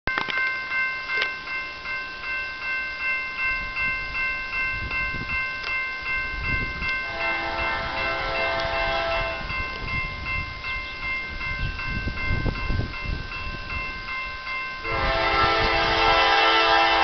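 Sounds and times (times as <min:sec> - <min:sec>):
railroad crossing bell ringing: 0:00.1 - 0:17.0
train rumbling: 0:00.1 - 0:17.0
locomotive air horn chord: 0:07.0 - 0:09.5, 0:14.8 - 0:17.0.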